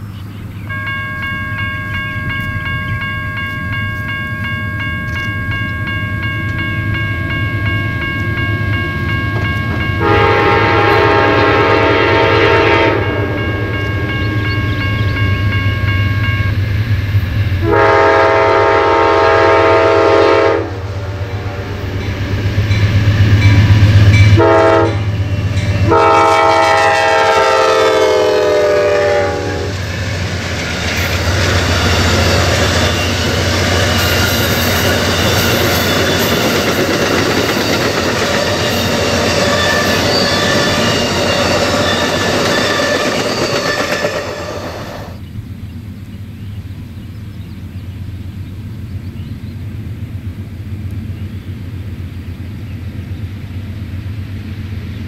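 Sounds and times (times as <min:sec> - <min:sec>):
train horn blasts: 0:09.4 - 0:16.6, 0:17.6 - 0:29.9
train wheels clattering on rails: 0:28.6 - 0:45.2.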